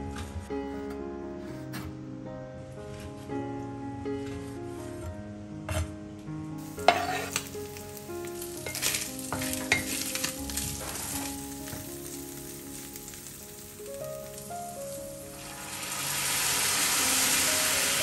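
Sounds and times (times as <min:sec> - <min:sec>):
meat sizzling in a frying pan: 0:06.6 - 0:18.0
wooden spoon knocking and scraping pan: 0:06.7 - 0:07.6, 0:08.6 - 0:11.9.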